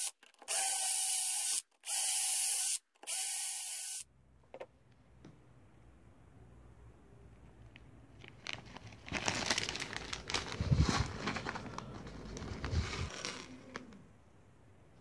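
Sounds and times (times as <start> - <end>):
plastic bag crinkling: 8.2 - 14.0.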